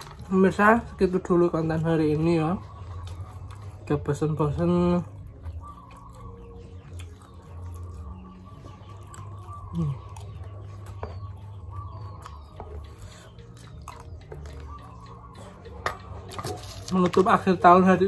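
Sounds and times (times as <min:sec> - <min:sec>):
person chewing: 0:02.6 - 0:04.0, 0:05.0 - 0:17.5.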